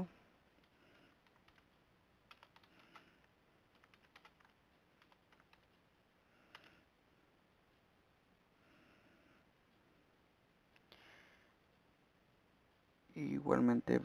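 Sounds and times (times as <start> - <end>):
typing on computer keyboard: 0.6 - 5.8, 6.4 - 6.8.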